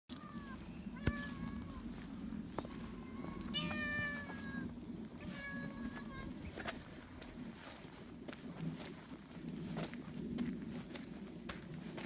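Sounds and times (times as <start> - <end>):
cat meowing: 0.1 - 1.8, 2.7 - 6.6.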